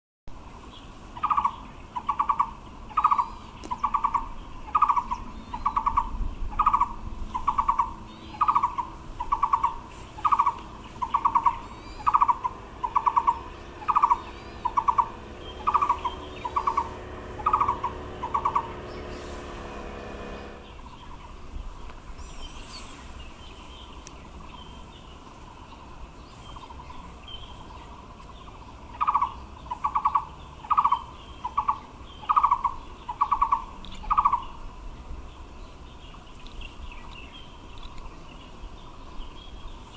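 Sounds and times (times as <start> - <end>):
bird calling in trilled notes: 1.2 - 21.4, 26.5 - 34.7.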